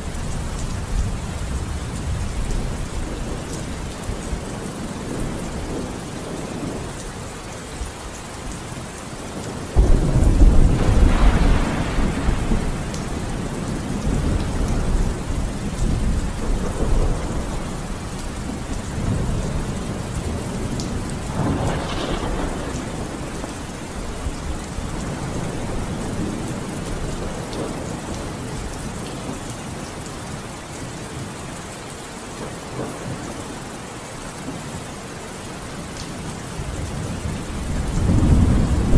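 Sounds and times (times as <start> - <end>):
steady rain: 0.0 - 38.9
thunder rumbling: 9.4 - 29.4, 36.6 - 38.9
loud thunderclap: 9.8 - 17.7, 21.3 - 23.6, 37.7 - 38.9.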